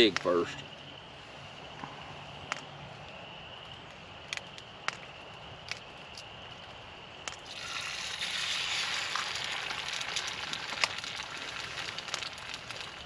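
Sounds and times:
egg sizzling in hot oil: 0:07.4 - 0:13.0.

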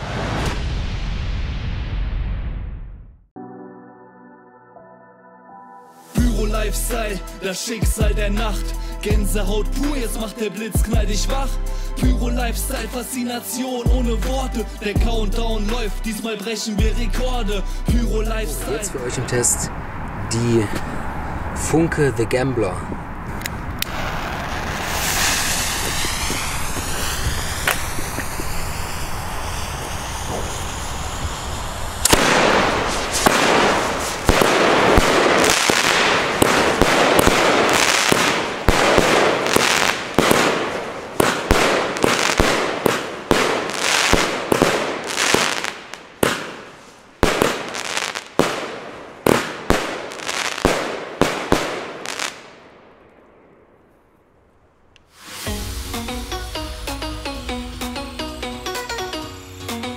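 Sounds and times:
firework fuse hiss: 0:23.8 - 0:48.4, 0:55.0 - 0:59.9
firework launches and bursts: 0:23.8 - 0:52.7, 0:55.0 - 0:59.9.

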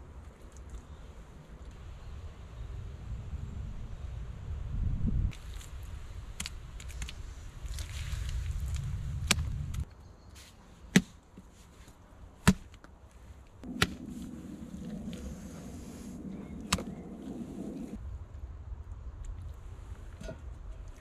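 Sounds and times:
steady rushing noise: 0:13.6 - 0:18.9
low rumble: 0:13.6 - 0:20.7.

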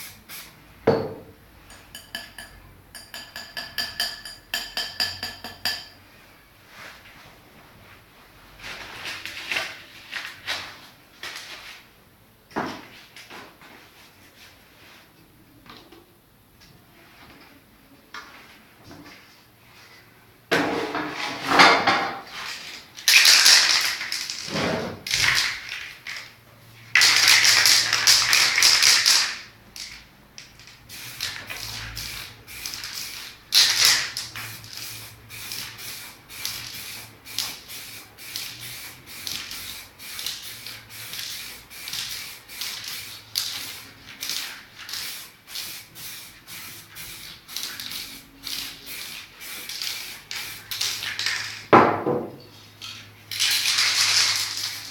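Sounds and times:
aerosol spray can hissing: 0:30.9 - 0:51.1.

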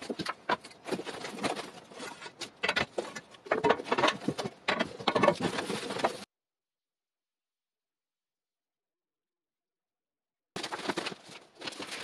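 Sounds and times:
metal rails scraping and knocking: 0:00.0 - 0:06.3
rustling of cardboard packing: 0:00.0 - 0:06.3, 0:10.6 - 0:12.0.

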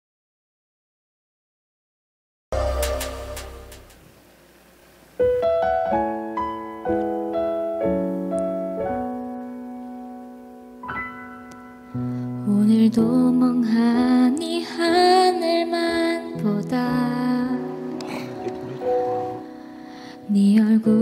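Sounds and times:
slow piano ballad: 0:05.2 - 0:21.0.

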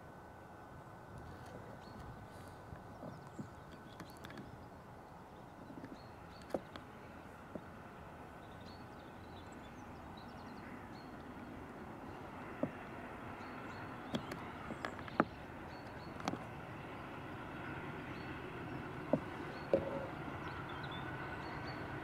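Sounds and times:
distant steam locomotive running: 0:04.7 - 0:22.0.

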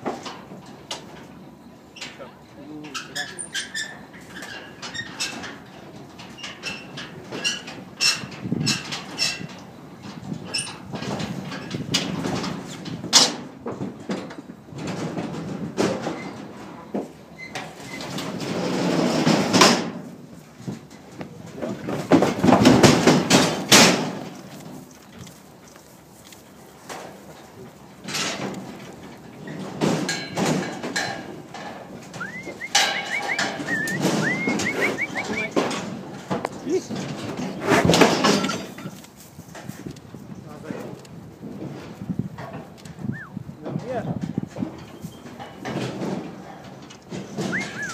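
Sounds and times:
bangs and knocks on crate: 0:21.9 - 0:24.4
bird whistling rising notes: 0:32.2 - 0:35.6, 0:47.5 - 0:47.9.

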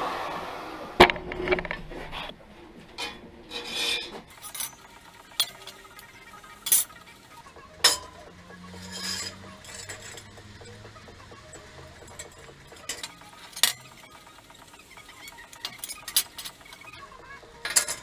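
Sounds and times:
steel sheet scraping on worktable: 0:03.0 - 0:04.7, 0:08.8 - 0:10.2.

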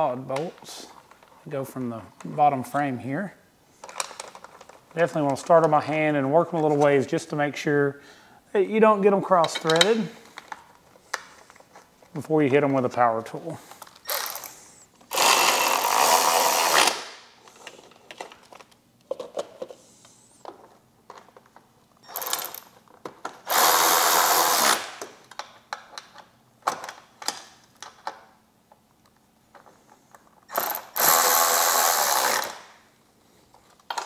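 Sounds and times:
cordless power driver running: 0:15.1 - 0:17.0, 0:30.6 - 0:32.7.

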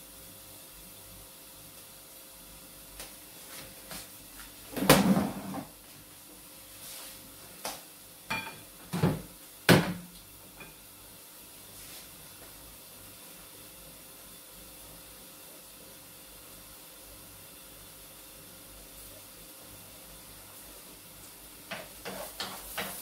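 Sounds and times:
cookware knocking and clanking: 0:08.3 - 0:10.0.

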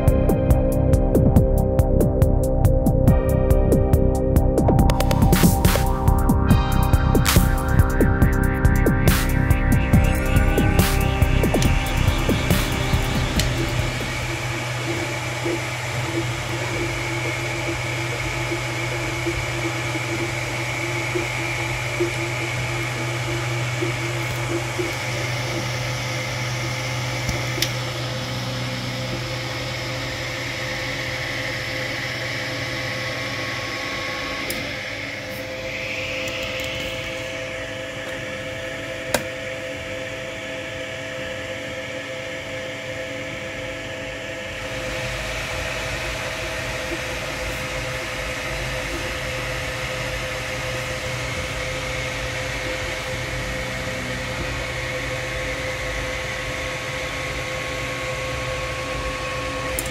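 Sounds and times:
low hum: 0:00.0 - 0:59.9
printer motor hum and tones: 0:10.0 - 0:39.9, 0:44.6 - 0:59.9.

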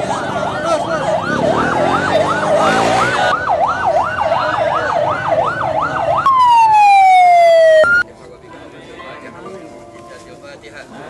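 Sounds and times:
police motorcycle siren: 0:00.0 - 0:08.0.

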